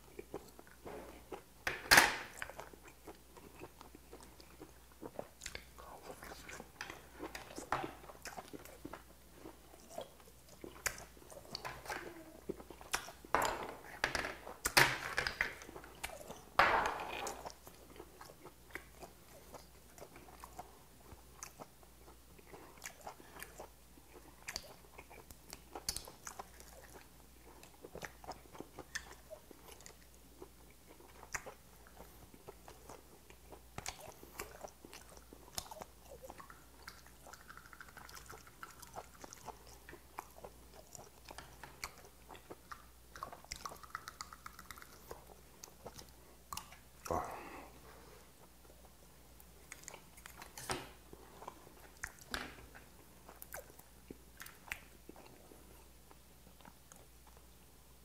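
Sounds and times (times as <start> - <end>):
person chewing wetly: 0.0 - 1.5, 2.3 - 14.8, 15.4 - 47.6, 48.4 - 57.6
mouth clicks and smacks: 9.7 - 16.4, 22.4 - 47.3, 48.6 - 55.4.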